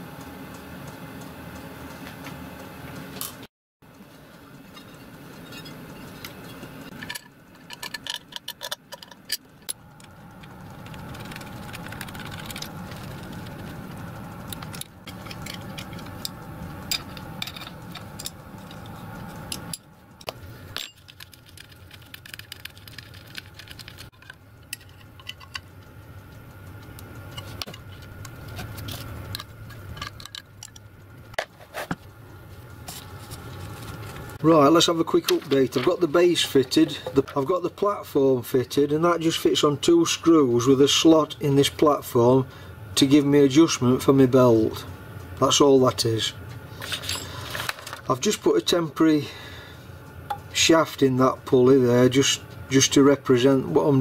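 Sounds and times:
steady low hum: 0.0 - 54.0
metal parts clinking: 6.9 - 9.5, 16.9 - 18.9, 46.8 - 48.1.

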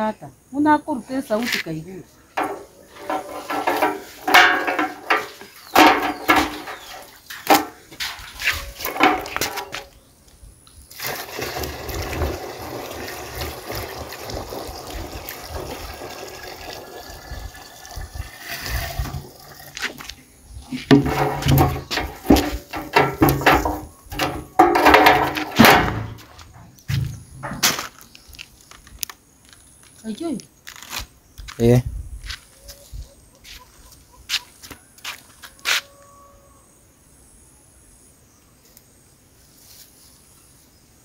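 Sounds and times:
water pouring into jerrican: 10.9 - 20.0.

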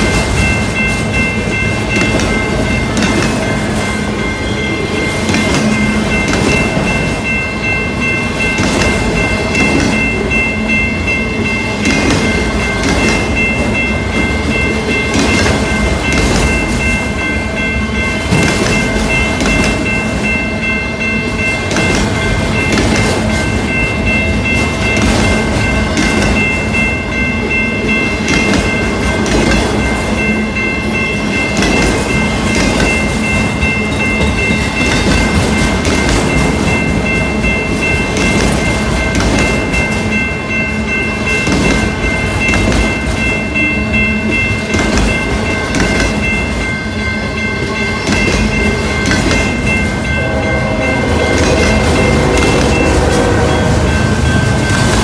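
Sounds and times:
crossing bell ringing: 0.0 - 55.0
train wheels clattering over rail joints: 5.1 - 7.3, 8.3 - 10.1, 11.8 - 17.0, 18.2 - 20.3, 21.4 - 23.8, 24.4 - 26.6, 28.0 - 30.2, 31.3 - 40.2, 41.2 - 43.4, 44.3 - 46.7, 48.0 - 49.9.

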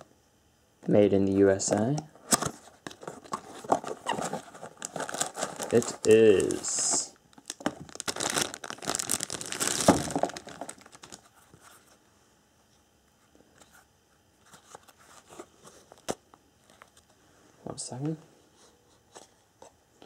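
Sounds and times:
plastic bag crinkling: 3.2 - 11.3.

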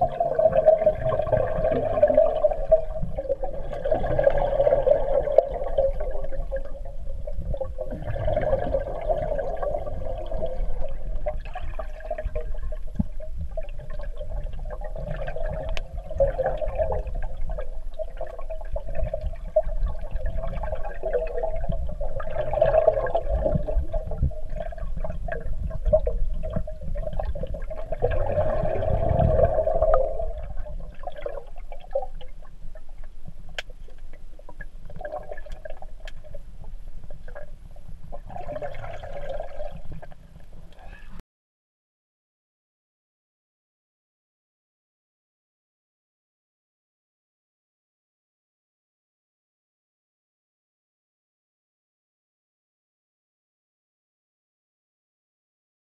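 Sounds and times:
churning water and bubbles: 0.0 - 41.2
underwater hum: 0.0 - 41.2.

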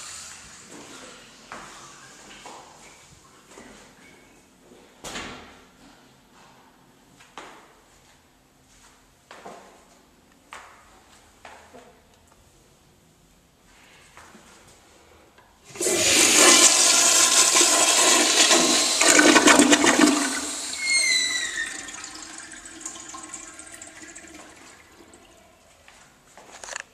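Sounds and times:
falling squeal: 20.5 - 22.3.

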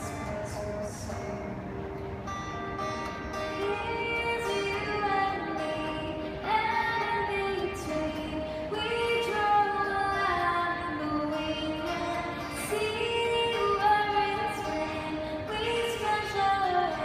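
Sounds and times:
woman singing slow melody: 3.5 - 17.0.

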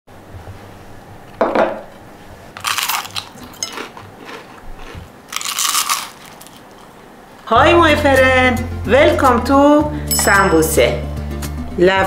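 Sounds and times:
glass plate knocking on countertop: 1.4 - 1.8
crispy pastry crunching when chewed: 2.6 - 7.0.

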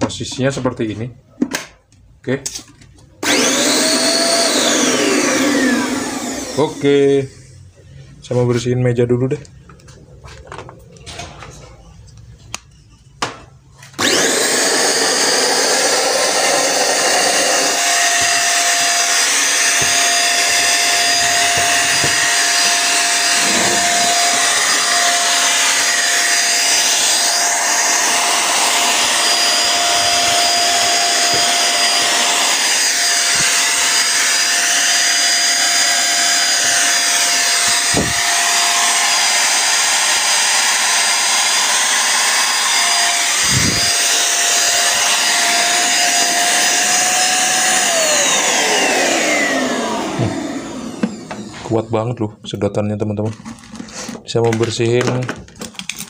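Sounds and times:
handheld vacuum cleaner whine: 3.2 - 7.5, 13.8 - 52.1.

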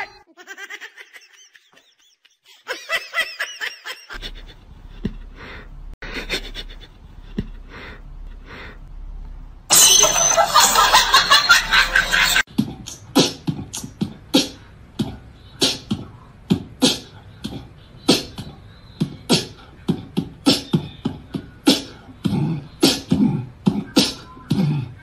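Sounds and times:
rhythmic percussive beat: 9.7 - 24.7.

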